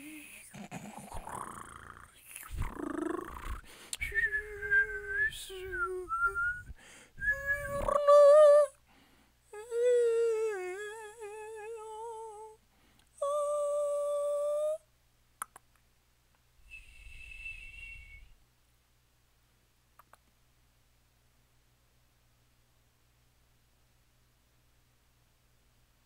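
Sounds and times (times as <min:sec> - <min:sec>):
low breathy noise: 0:00.0 - 0:07.9, 0:08.8 - 0:09.6, 0:12.6 - 0:13.2, 0:16.6 - 0:18.4
high whistle-like vocal tone: 0:02.2 - 0:08.6, 0:16.7 - 0:18.4
faint clicks: 0:15.4 - 0:16.4, 0:20.0 - 0:20.4.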